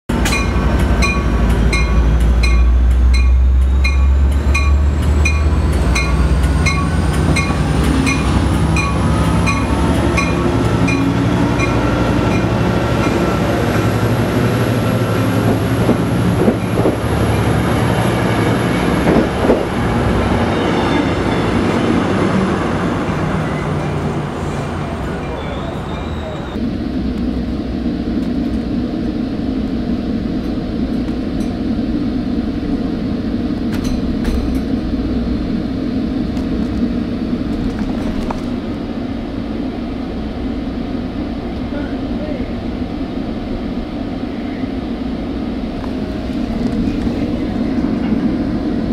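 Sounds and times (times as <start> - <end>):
diesel locomotive passing: 0.1 - 48.9
train wheel noise: 0.1 - 48.9
train bell ringing: 0.2 - 13.3, 25.1 - 26.6.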